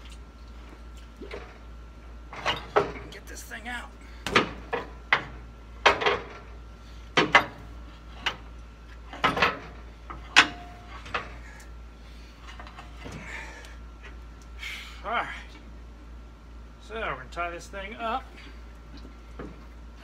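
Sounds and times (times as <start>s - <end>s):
metal clanks and knocks: 2.3s - 3.2s, 4.3s - 6.6s, 7.2s - 8.5s, 9.1s - 11.4s.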